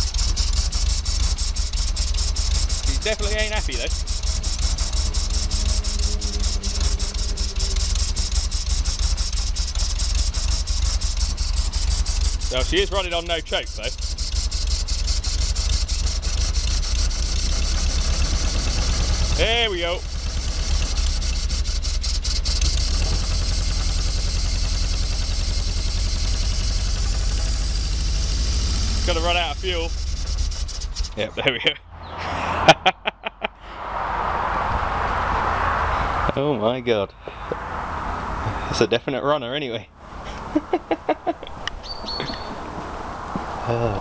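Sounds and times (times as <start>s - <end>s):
sharp ticks: 0.0s - 31.2s
engine running unevenly: 0.0s - 33.5s, 40.0s - 44.0s.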